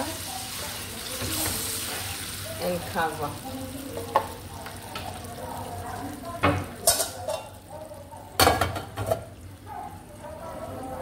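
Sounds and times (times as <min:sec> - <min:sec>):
sauce sizzling in a frying pan: 0:00.0 - 0:11.0
metal cover clattering on pan: 0:06.8 - 0:07.6.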